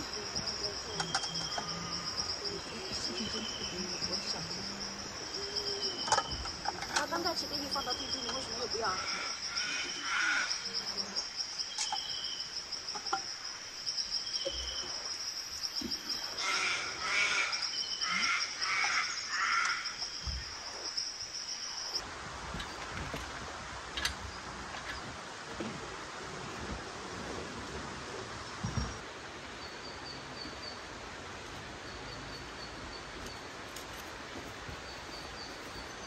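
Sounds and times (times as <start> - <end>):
high insect trill: 0.0 - 22.8
faint outdoor hiss: 0.0 - 36.0.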